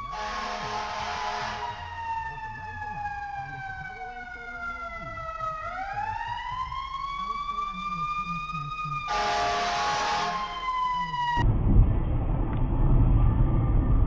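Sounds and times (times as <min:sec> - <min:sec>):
fire truck siren wailing: 0:00.0 - 0:11.5
air horn blast: 0:00.1 - 0:01.9, 0:09.1 - 0:10.7.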